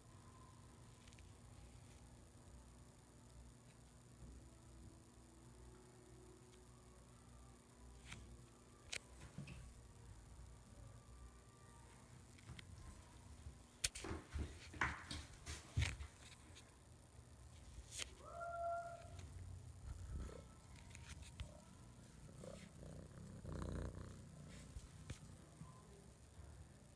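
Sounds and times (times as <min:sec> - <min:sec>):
cat calling: 0:18.2 - 0:19.3
cat purring: 0:19.8 - 0:26.8.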